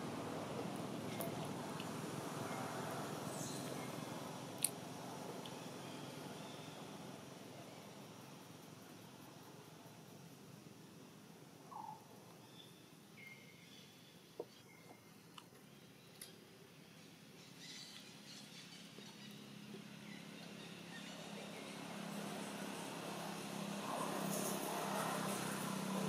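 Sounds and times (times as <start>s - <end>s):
passing vehicle hum: 0.0s - 8.5s, 18.1s - 26.0s
soft chirps and clicks: 4.6s - 5.6s, 14.3s - 16.4s.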